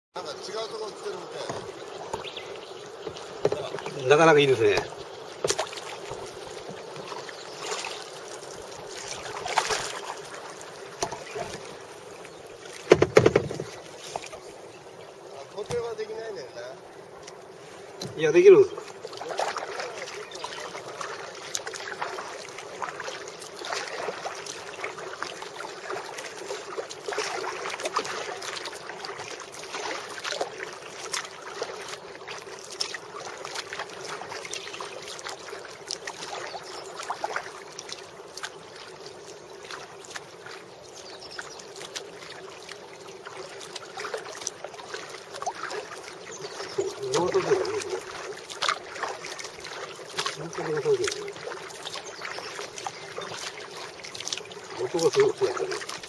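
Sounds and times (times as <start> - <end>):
paddle splashes and drips: 0.2 - 56.0
water lapping at hull: 0.2 - 56.0
hiss of moving water: 13.6 - 56.0.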